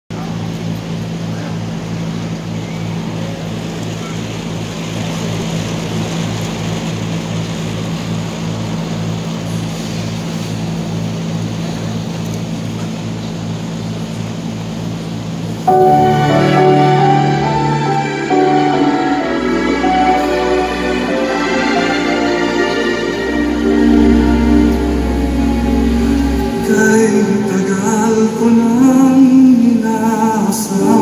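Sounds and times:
loudspeaker hum and buzz: 15.5s - 30.0s
pulsing throb: 15.7s - 29.0s.

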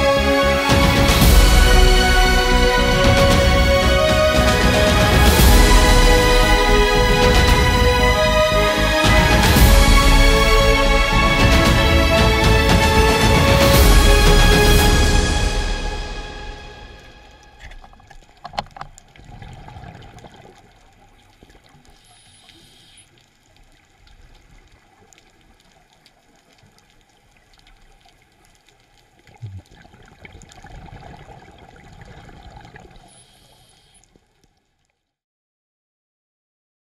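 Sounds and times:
exhaled bubbles bursting: 17.4s - 22.2s, 29.1s - 34.2s
faint hiss: 21.8s - 24.0s, 33.0s - 34.1s
diver breathing on a regulator: 22.0s - 23.1s, 33.0s - 34.1s.

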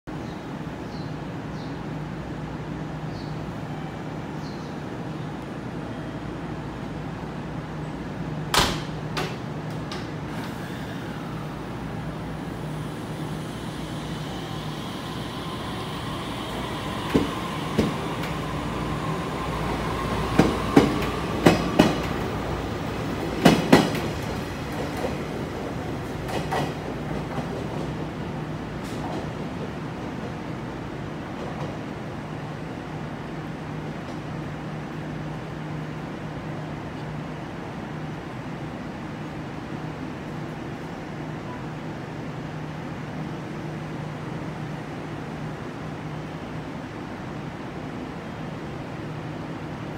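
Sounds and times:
train hum: 0.2s - 49.9s
train motor whine: 10.3s - 24.8s.

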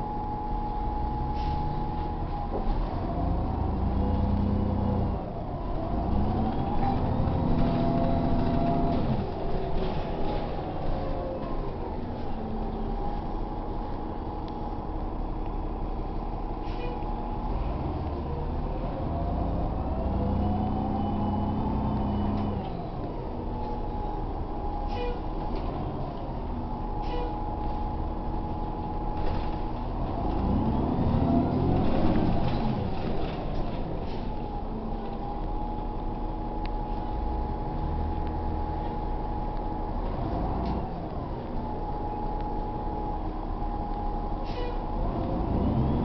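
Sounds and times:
bus engine from inside: 0.0s - 46.0s.

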